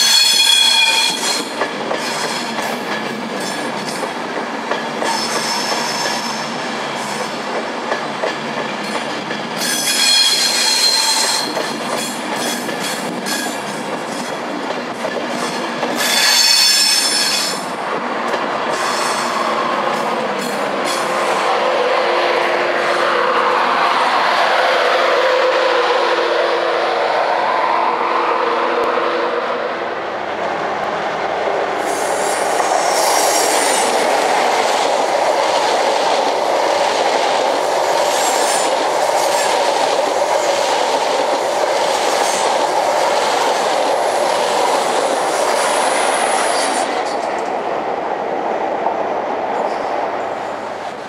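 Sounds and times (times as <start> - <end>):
diesel locomotive passing: 0.0 - 51.0
electric train humming: 0.0 - 51.0
train coaches rumbling and clattering: 0.0 - 51.0
wheel squeals: 9.6 - 11.6.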